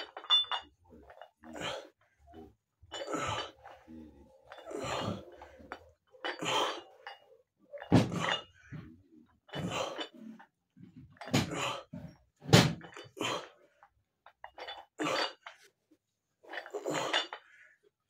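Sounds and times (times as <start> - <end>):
man exhaling and grunting: 1.4 - 7.0, 7.9 - 10.4, 11.3 - 12.2.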